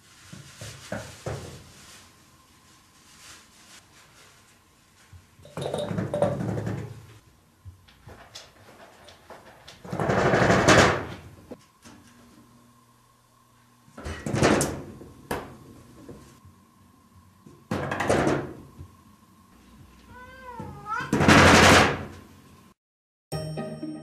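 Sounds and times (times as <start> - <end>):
cat meowing: 20.1 - 21.2.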